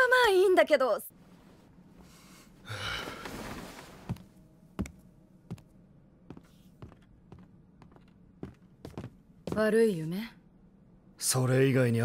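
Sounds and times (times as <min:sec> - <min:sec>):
man sighing: 0:02.6 - 0:03.3
footsteps on wooden floorboards: 0:04.0 - 0:05.7, 0:06.3 - 0:09.8.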